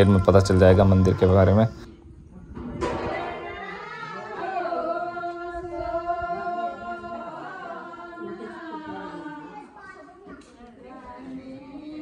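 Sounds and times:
voices singing long-held notes: 0.0s - 1.9s, 2.9s - 9.8s.

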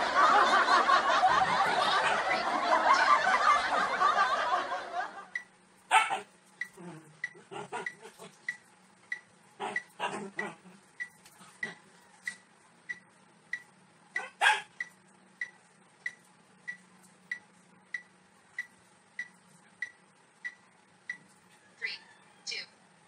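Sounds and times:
electronic ticks: 5.3s - 5.6s, 6.5s - 21.4s.

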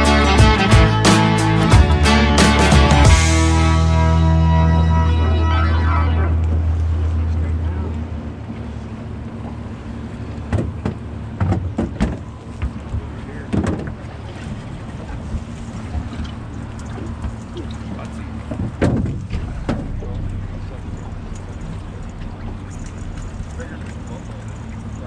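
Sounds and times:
boat engine hum: 0.0s - 25.0s
rushing water: 2.6s - 25.0s
wind on microphone: 18.5s - 25.0s.

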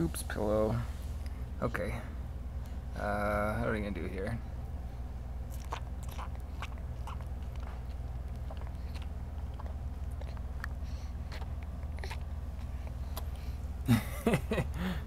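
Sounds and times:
steady low hum: 0.0s - 15.0s
baby chewing mouth clicks: 5.5s - 13.5s.

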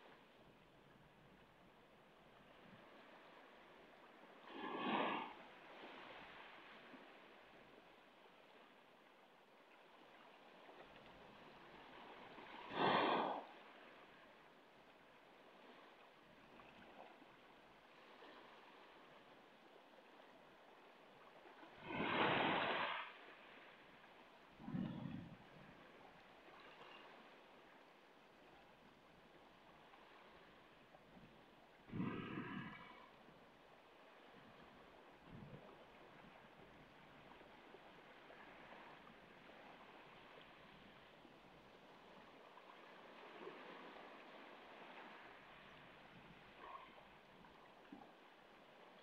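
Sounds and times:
small waves on pebble beach: 21.7s - 23.9s
loud surge of water: 21.8s - 23.2s.

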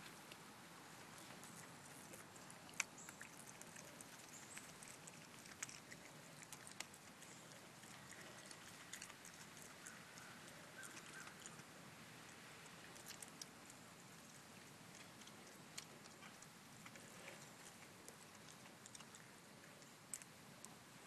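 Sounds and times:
raccoon pawing at pumpkin: 1.0s - 11.7s.

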